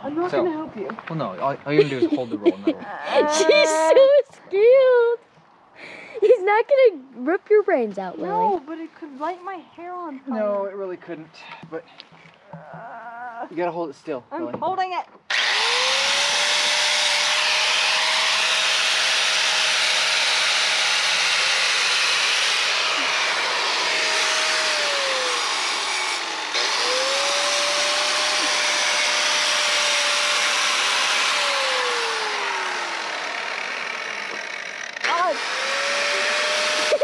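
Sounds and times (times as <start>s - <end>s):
angle grinder whining: 15.3s - 37.0s.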